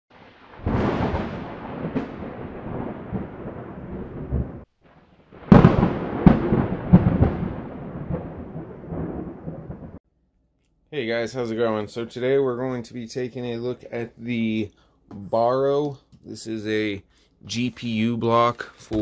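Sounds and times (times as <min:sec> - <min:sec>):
heavy hits with thunder-like rumble: 0:00.1 - 0:04.7, 0:05.3 - 0:10.0.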